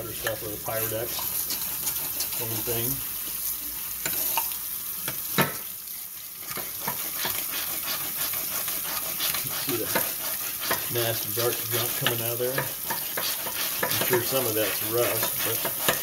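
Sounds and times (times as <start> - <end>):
cleaning rod scraping in barrel: 6.4 - 16.0.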